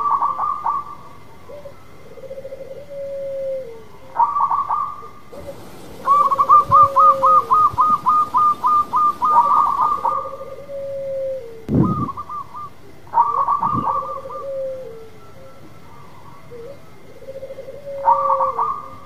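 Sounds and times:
dove cooing: 0.0 - 19.0
fast higher repeated bird notes: 5.4 - 10.2.

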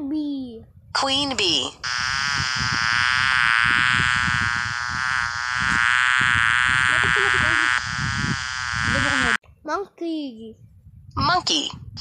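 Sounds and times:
bee buzzing from phone speaker: 1.8 - 9.4.

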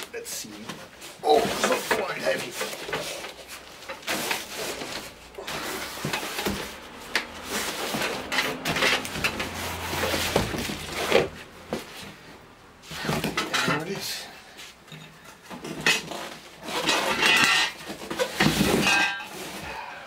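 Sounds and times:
cardboard box scraping and rustling: 0.8 - 12.2, 16.0 - 19.8.

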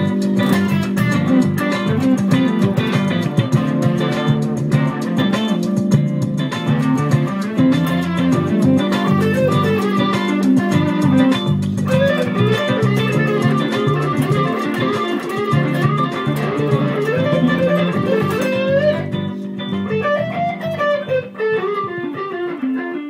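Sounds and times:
high rhythmic clicks: 0.0 - 22.4
backing track rhythm: 0.0 - 22.8
electric guitar lead: 0.0 - 23.0.

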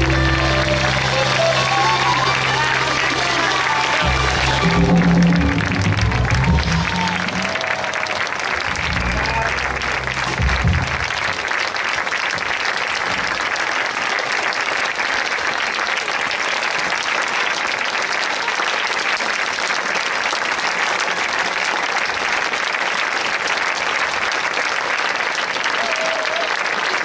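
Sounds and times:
band low note: 0.0 - 11.5
audience applauding: 0.0 - 27.0.

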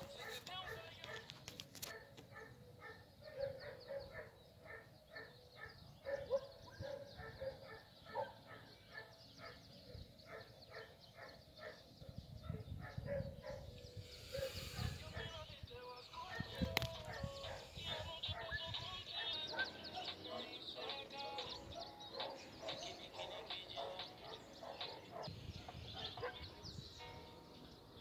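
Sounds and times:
animal calling rhythmically: 17.2 - 25.3.

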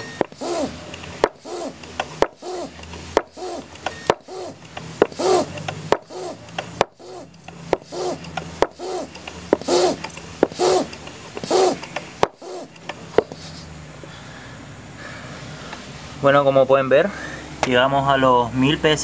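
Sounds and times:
hand pump clicking: 0.0 - 13.7
hand pump squeaking: 0.0 - 13.7.

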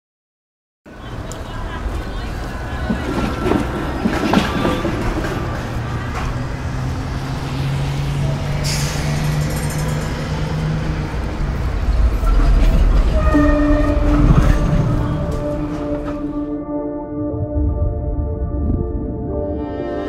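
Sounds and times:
bus engine running: 0.9 - 13.2
street traffic: 0.9 - 16.6
low rumble: 7.8 - 20.0
air brake hiss: 8.6 - 9.4
music: 13.1 - 20.0.

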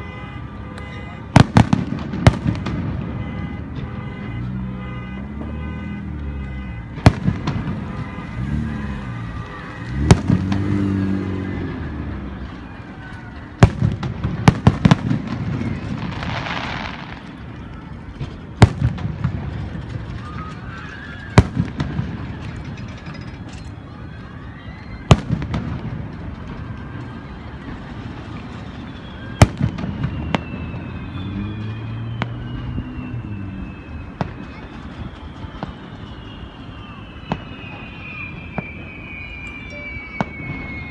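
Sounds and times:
light firework pops: 0.8 - 4.0, 7.0 - 8.2, 13.1 - 23.8, 29.4 - 33.1, 33.7 - 40.8.

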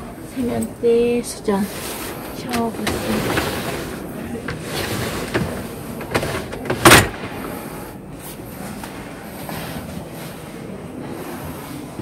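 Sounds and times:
folding door sliding on track: 1.7 - 8.0.

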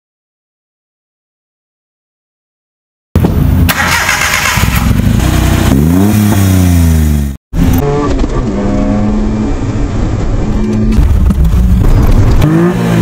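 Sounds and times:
truck engine revving: 3.7 - 13.0.

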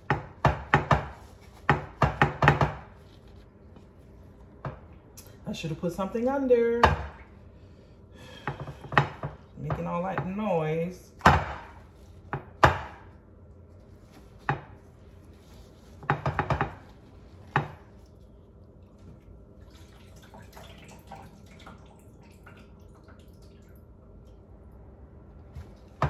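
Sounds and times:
kitchenware knocking on counter: 0.0 - 2.9, 16.0 - 16.9
water dripping: 18.0 - 24.5.

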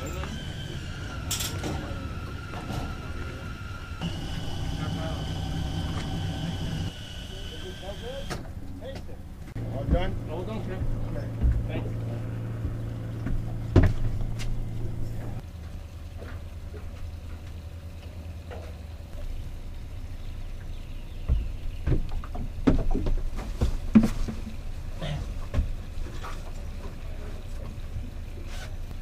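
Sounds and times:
low machine hum: 0.0 - 29.0
knocks and clunks: 8.2 - 15.4, 21.2 - 27.0.

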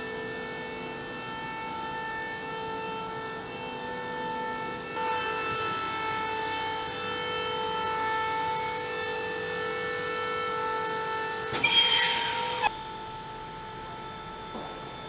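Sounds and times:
shop machinery whine: 0.0 - 15.0
loud hissing squeal: 11.6 - 12.7.

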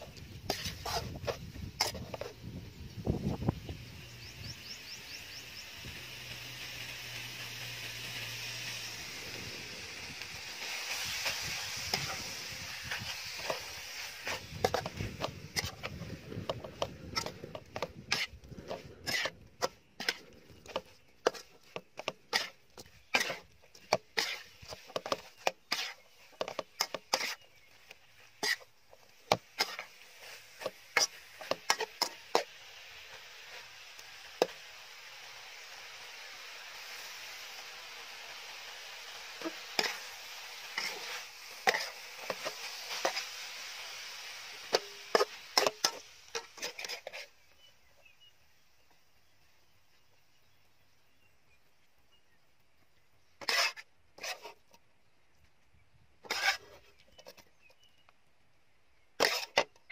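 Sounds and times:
spatula striking and scraping wok: 0.0 - 2.4, 4.6 - 47.4, 53.4 - 54.6, 56.2 - 56.8, 59.2 - 59.7
meat sizzling in a wok: 0.0 - 51.6, 56.2 - 56.6, 59.2 - 59.9.

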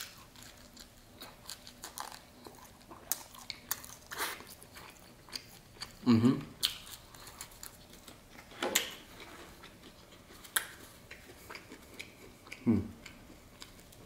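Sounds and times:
person humming: 6.0 - 6.6, 12.6 - 13.1.

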